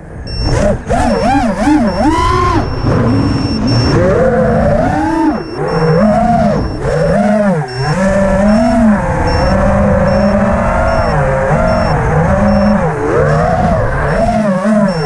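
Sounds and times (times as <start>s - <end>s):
drone motors whining: 0.0s - 15.0s
wind rumble on microphone: 7.8s - 15.0s.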